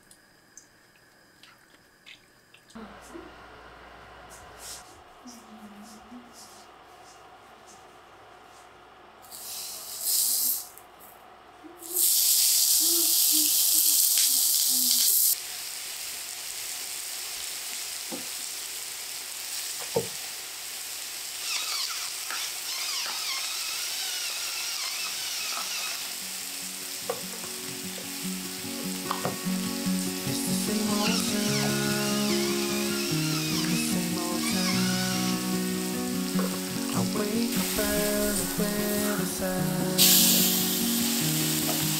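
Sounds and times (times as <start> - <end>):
pork sizzling on a griddle: 9.2 - 10.7, 11.8 - 41.9
fat crackling: 21.4 - 41.9.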